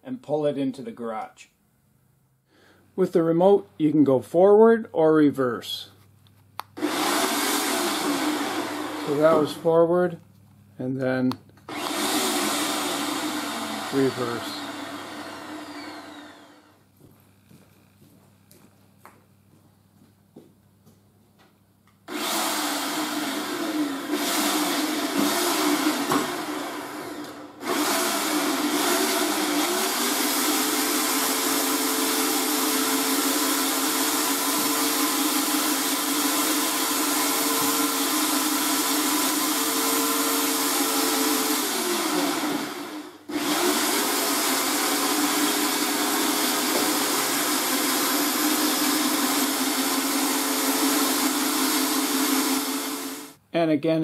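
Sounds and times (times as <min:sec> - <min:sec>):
electric winch motor running: 0:06.8 - 0:09.6, 0:11.7 - 0:16.8, 0:22.1 - 0:53.4.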